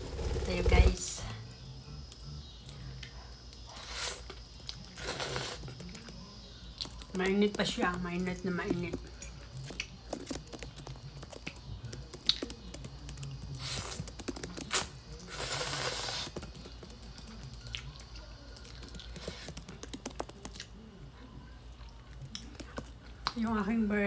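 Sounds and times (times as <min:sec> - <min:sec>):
wet mouth eating noises: 0:09.0 - 0:20.8.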